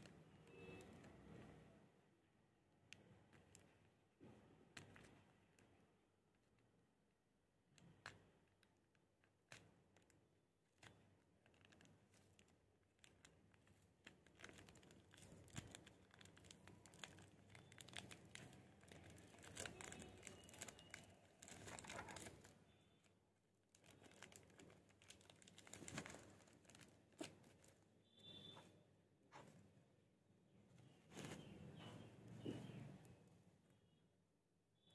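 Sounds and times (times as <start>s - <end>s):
tape and paper crinkling: 7.8s - 22.8s, 23.6s - 28.6s.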